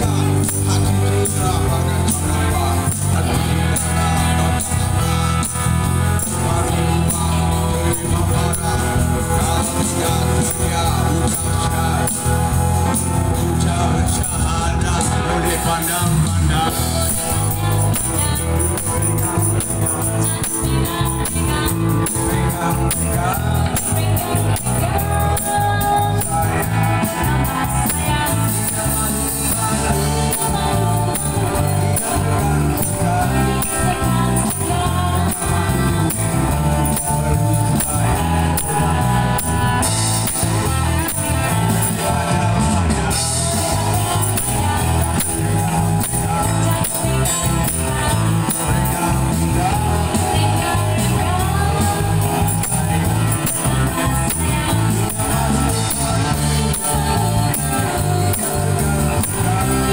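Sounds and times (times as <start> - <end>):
tambourine shaken: 0.0 - 14.8, 15.4 - 59.9
electric bass guitar: 0.0 - 59.9
electric guitar: 0.0 - 59.9
woman singing into a microphone: 16.8 - 42.4.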